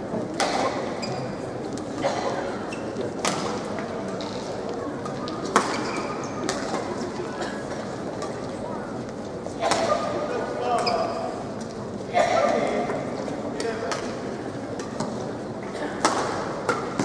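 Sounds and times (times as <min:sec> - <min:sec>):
murmur of sports hall: 0:00.0 - 0:17.0
racket hitting shuttlecock: 0:00.4 - 0:00.9, 0:16.0 - 0:17.0
shoes squeaking on court: 0:00.9 - 0:01.4, 0:02.7 - 0:03.0.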